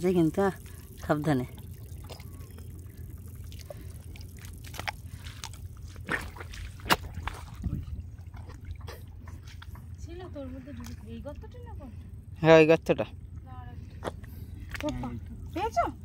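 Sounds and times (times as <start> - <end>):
low rumble: 0.0 - 16.0
hands squelching in wet mud: 3.4 - 9.8
wet smacks: 4.6 - 7.5.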